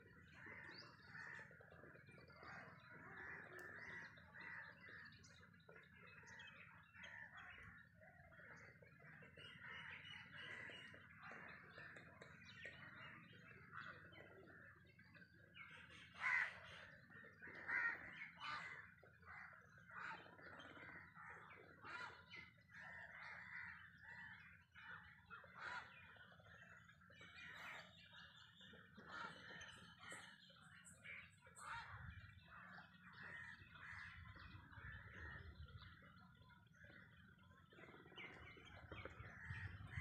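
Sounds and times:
colony of birds calling: 0.0s - 40.0s.

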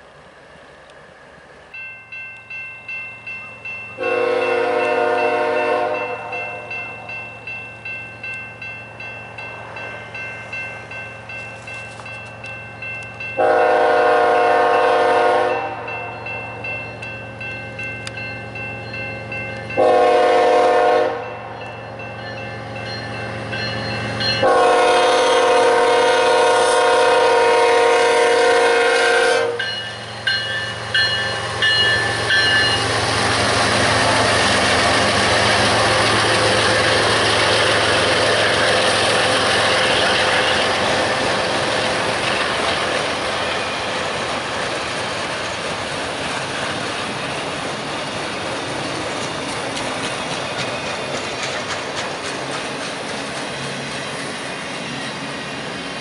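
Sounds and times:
crossing bell dinging: 1.7s - 26.0s, 29.4s - 44.3s
locomotive air horn blast: 4.0s - 6.7s, 13.4s - 15.9s, 19.8s - 21.4s, 24.4s - 29.7s.

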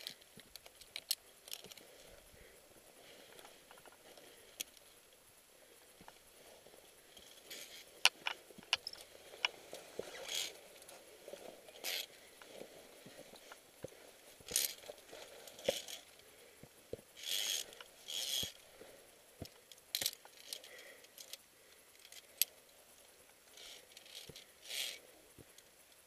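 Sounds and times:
carabiners clinking on steel cable: 0.0s - 2.1s, 7.1s - 12.6s, 14.4s - 16.2s, 17.1s - 18.6s, 19.4s - 22.7s, 23.5s - 25.0s.

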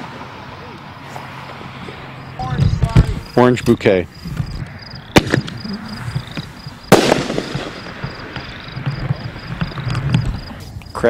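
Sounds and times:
firework lift charge bang: 5.1s - 10.2s
firework shell bursting: 5.1s - 10.6s.

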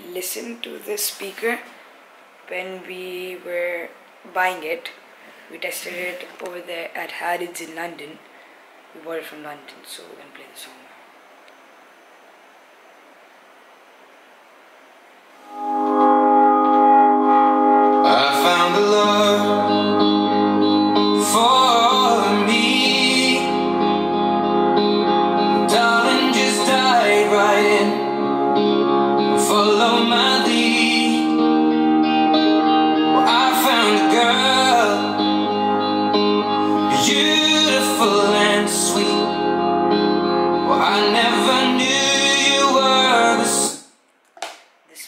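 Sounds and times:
guitar playing: 15.4s - 43.7s
held chord: 15.4s - 43.7s
person singing: 18.0s - 20.2s, 21.0s - 24.1s, 25.4s - 31.8s, 32.9s - 35.7s, 36.5s - 39.7s, 40.4s - 43.9s.

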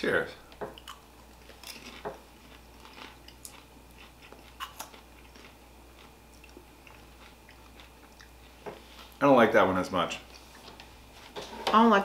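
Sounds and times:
popcorn crunching: 0.8s - 8.4s.

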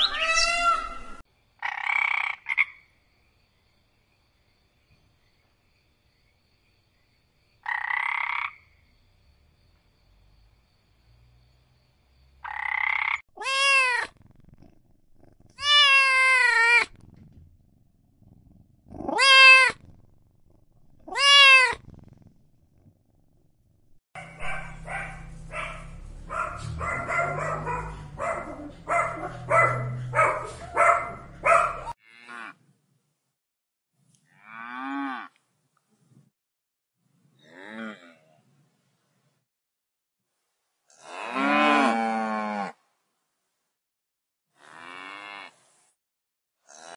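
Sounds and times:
cat meowing: 0.0s - 1.2s, 13.4s - 14.2s, 15.6s - 16.9s, 18.9s - 19.8s, 21.0s - 21.8s
low hum: 23.2s - 31.9s
cow mooing: 31.2s - 32.6s, 41.0s - 42.8s.

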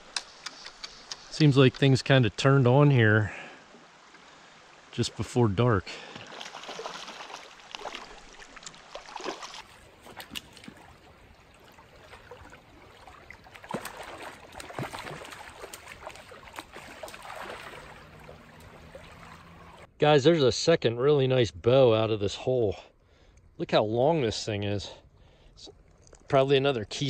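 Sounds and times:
creek water flowing: 0.0s - 19.9s
fish splashing at surface: 6.0s - 19.9s.

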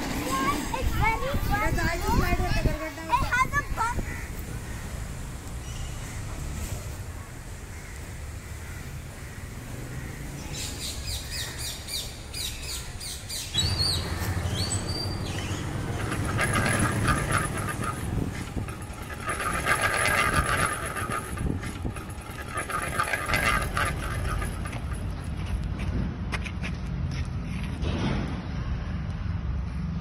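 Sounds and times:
small birds chirping: 4.2s - 6.3s, 7.3s - 15.9s
rapid even clatter: 13.6s - 25.9s.

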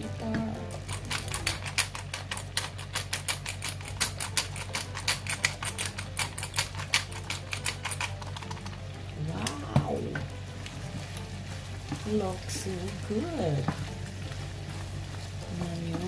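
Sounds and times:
pepper mill grinding clicks: 0.8s - 8.8s.

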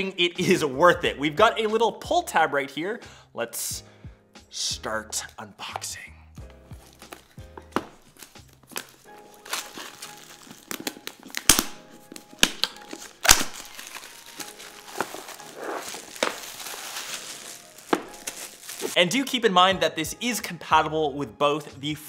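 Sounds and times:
background music: 0.0s - 22.0s
plastic wrap crinkling and tearing: 6.8s - 19.0s.

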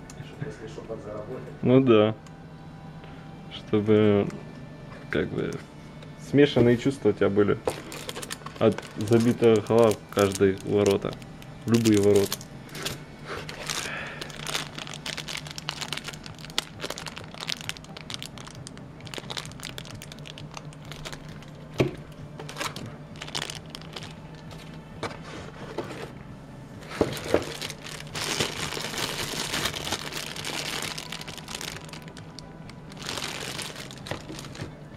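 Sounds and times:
steady low hum: 0.0s - 34.9s
plastic bags crinkling: 7.7s - 24.8s, 26.8s - 34.8s
packaging knocks: 26.9s - 32.2s, 33.0s - 34.7s.

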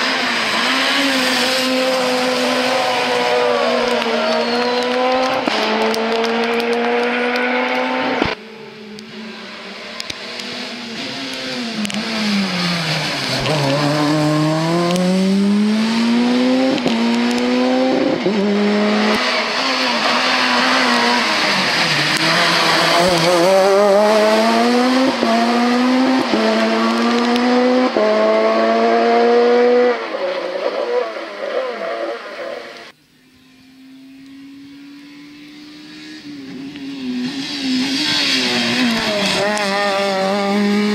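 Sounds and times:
rally car engine at full throttle: 0.0s - 40.9s.

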